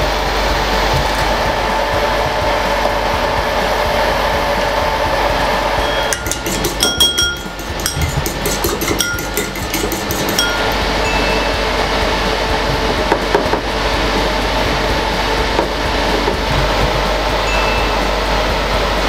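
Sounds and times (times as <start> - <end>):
steady rushing noise: 0.0 - 19.0
fork clinking in ceramic bowl: 6.0 - 11.3.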